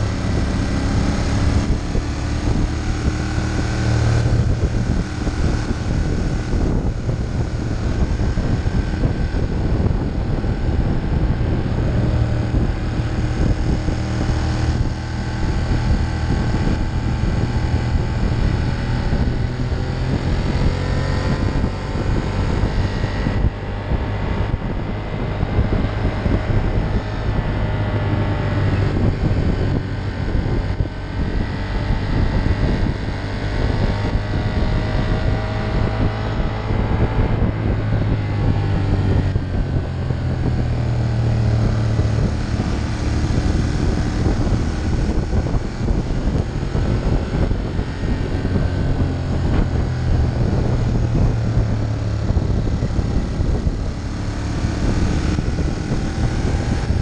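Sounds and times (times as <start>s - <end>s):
motorcycle engine running: 0.0s - 57.0s
wind buffeting microphone: 0.0s - 57.0s.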